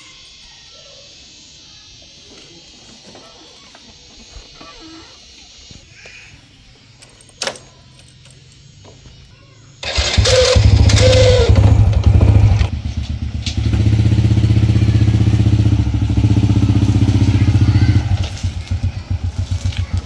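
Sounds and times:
motorcycle engine revving and idling: 7.8 - 20.0.

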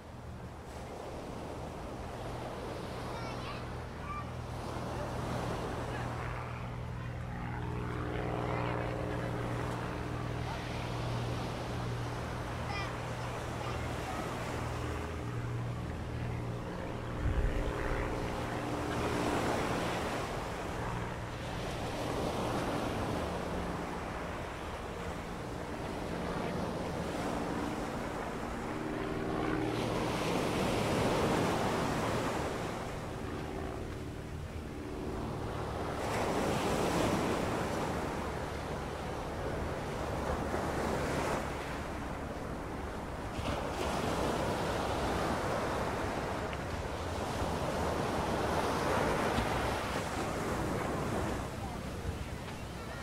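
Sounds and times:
surf washing on beach: 0.0 - 53.0.

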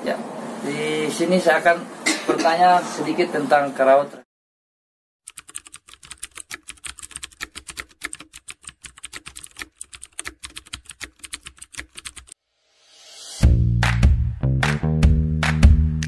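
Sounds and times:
rising whoosh: 12.4 - 13.5
loud music: 13.4 - 16.0.

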